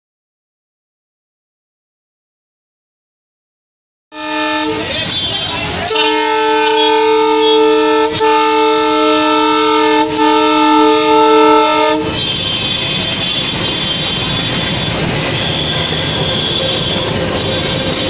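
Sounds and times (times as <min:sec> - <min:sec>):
locomotive horn: 0:04.1 - 0:18.0
locomotive engine: 0:04.2 - 0:18.0
train wheels rolling: 0:11.6 - 0:18.0.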